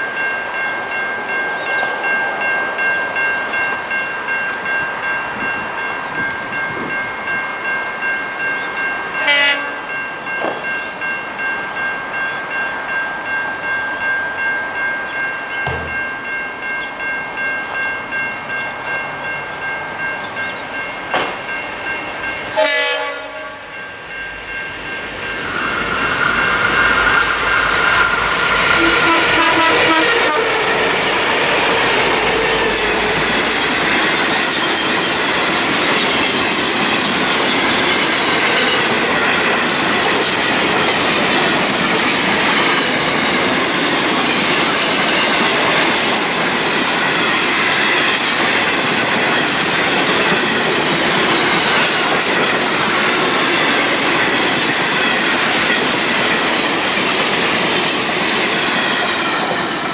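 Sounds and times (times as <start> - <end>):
diesel locomotive engine: 0.0 - 59.9
wagon wheels on rail: 13.5 - 59.9.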